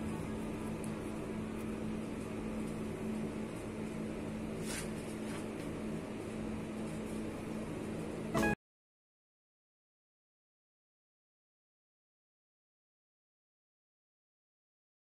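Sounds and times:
mechanical hum with hiss: 0.0s - 8.6s.

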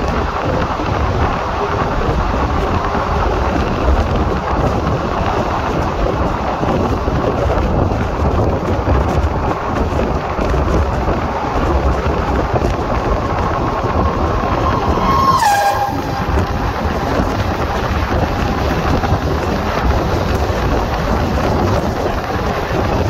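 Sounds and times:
rush of passing trains: 0.0s - 23.0s
train horn: 14.3s - 17.0s.

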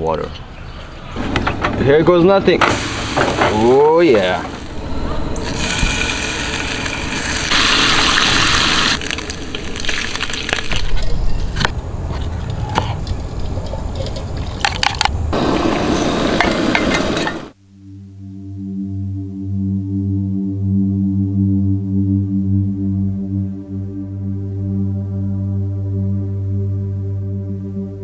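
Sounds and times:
soft ambient music: 17.7s - 28.0s.

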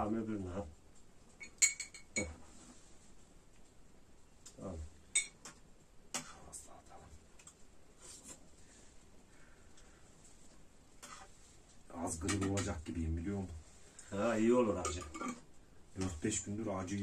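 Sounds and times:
metal spoons clinking on bowls: 1.4s - 2.4s, 5.1s - 5.4s, 14.7s - 15.4s.

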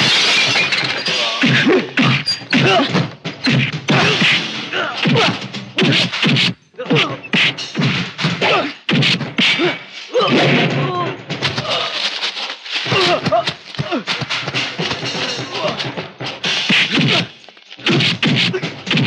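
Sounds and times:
people grunting: 1.1s - 6.2s, 6.8s - 7.4s, 8.4s - 8.8s, 9.4s - 12.1s, 12.8s - 16.0s, 16.8s - 19.0s
people shouting: 1.2s - 6.1s, 6.8s - 7.3s, 8.4s - 8.8s, 9.4s - 12.1s, 12.9s - 14.2s, 15.1s - 16.0s, 16.9s - 19.0s
punch and kick whacks: 1.4s - 10.8s, 16.7s - 19.0s.

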